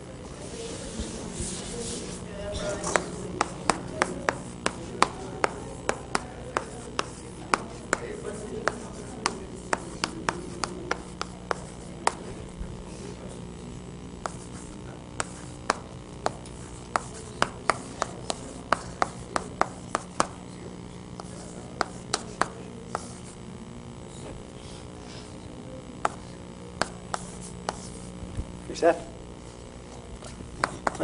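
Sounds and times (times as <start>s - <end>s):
low room hum: 0.0s - 31.0s
chalk tapping and scraping: 0.5s - 13.2s, 14.2s - 20.5s, 21.2s - 23.4s, 26.0s - 28.1s, 29.9s - 31.0s.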